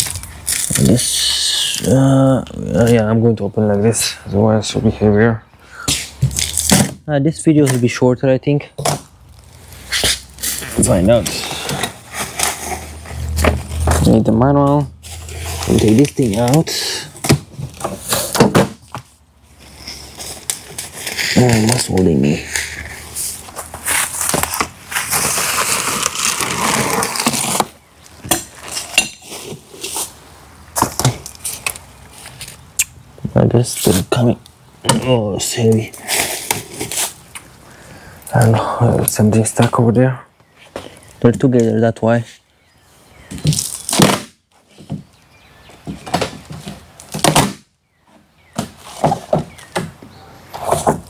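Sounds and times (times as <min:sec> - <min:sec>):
cardboard scraping: 0:08.9 - 0:30.2, 0:36.0 - 0:37.2, 0:50.5 - 0:51.0
plastic wrap rustling: 0:19.5 - 0:30.2.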